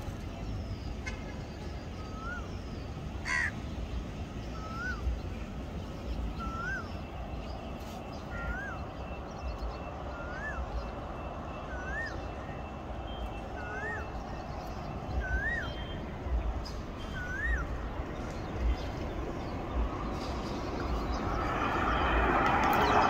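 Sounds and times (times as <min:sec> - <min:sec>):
steady low rumble: 0:02.6 - 0:23.0
bird whistling call: 0:06.3 - 0:07.0, 0:10.1 - 0:14.4, 0:15.1 - 0:16.1, 0:17.0 - 0:17.8.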